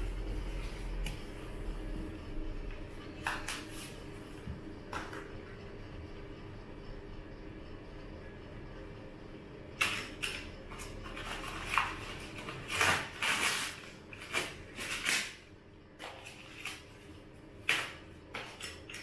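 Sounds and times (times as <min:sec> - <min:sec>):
packing plastic rustling: 0:11.0 - 0:15.4.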